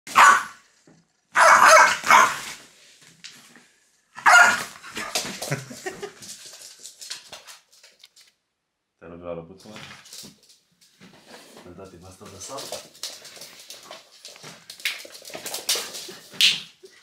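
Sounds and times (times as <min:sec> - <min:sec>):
dog barking: 0:00.1 - 0:00.6, 0:01.3 - 0:02.6, 0:04.2 - 0:05.1.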